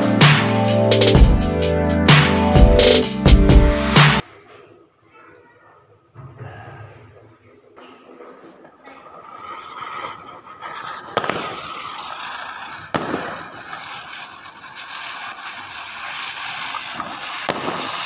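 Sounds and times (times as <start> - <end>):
ground firework hissing: 8.2 - 18.0
sharp cracks: 9.0 - 18.0.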